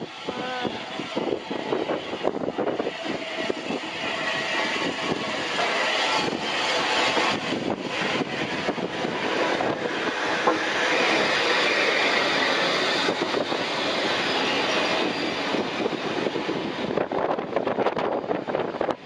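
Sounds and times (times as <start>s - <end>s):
train wheels clattering on rails: 4.2s - 19.0s.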